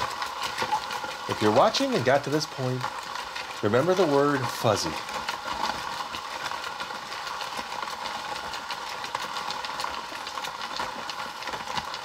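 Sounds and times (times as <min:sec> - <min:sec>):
hand crank grinding rattle: 0:00.0 - 0:12.0.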